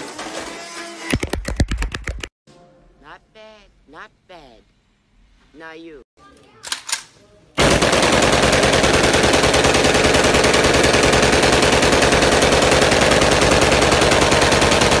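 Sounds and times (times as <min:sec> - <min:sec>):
assault rifle automatic fire: 0:07.6 - 0:15.0.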